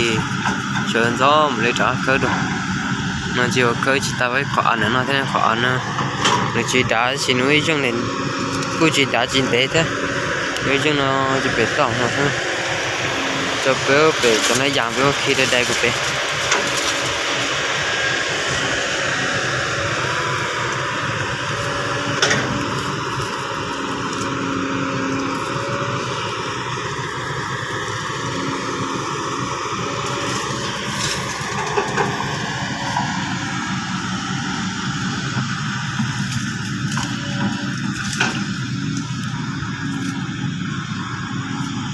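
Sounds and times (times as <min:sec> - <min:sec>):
excavator diesel engine running: 0:00.0 - 0:41.9.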